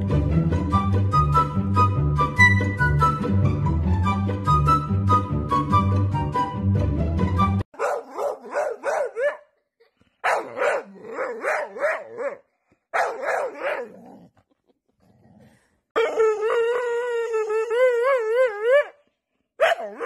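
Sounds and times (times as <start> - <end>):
dog howling and yodeling: 16.0 - 19.0.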